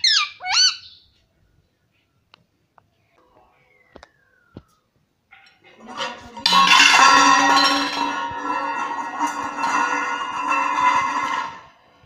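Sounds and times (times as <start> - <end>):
metal bowl clattering on floor: 5.3 - 12.0
bowl wobbling and ringing: 5.6 - 11.9.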